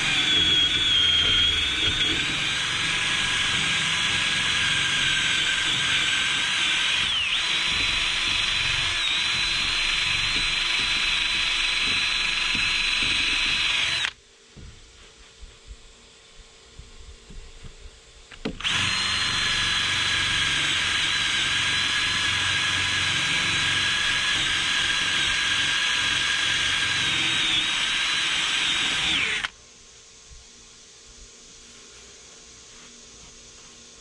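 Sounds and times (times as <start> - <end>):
drill grinding fiberglass: 0.0 - 14.2, 18.5 - 29.6.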